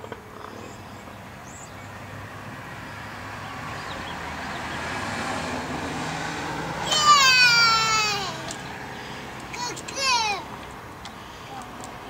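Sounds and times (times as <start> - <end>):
vehicle passing: 0.0 - 12.0
high voice calling out: 6.8 - 8.5, 9.5 - 10.5.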